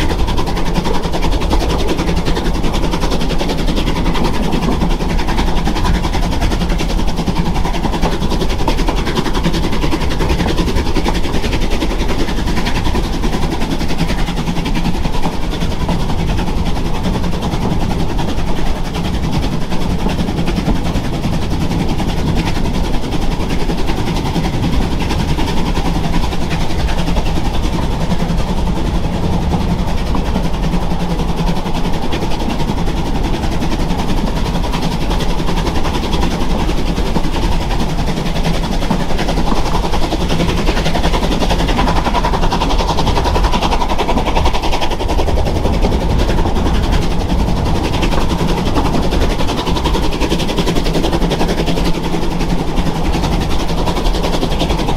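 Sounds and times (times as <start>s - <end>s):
low hum: 0.0s - 54.9s
train wheels rattling on rails: 0.0s - 54.9s.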